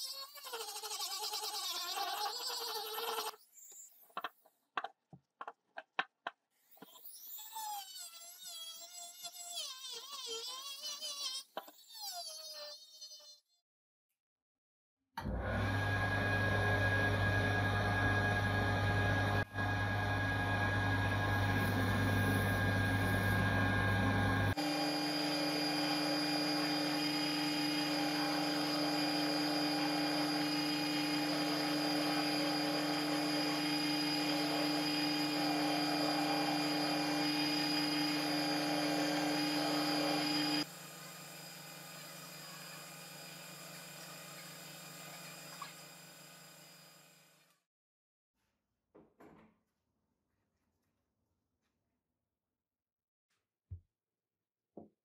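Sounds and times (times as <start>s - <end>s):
rotary sanding tool whining on metal: 21.2s - 47.0s
steel grinding on abrasive belt: 21.4s - 45.6s.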